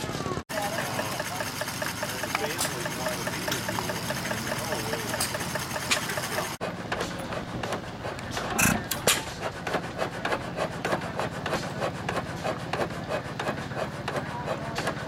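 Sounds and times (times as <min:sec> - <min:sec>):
small motor engine idling: 0:00.0 - 0:09.0
stationary engine clattering: 0:00.0 - 0:15.0.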